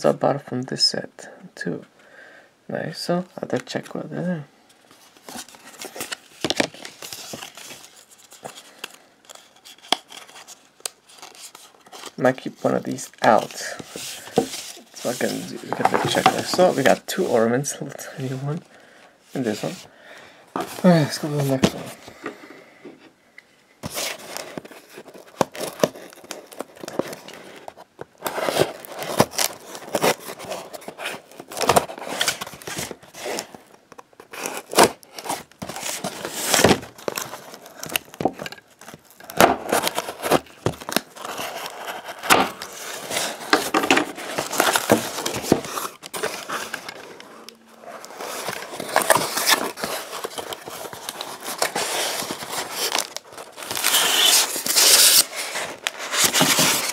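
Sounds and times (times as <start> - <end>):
cardboard crinkling and tearing: 4.9 - 17.4, 23.8 - 56.9.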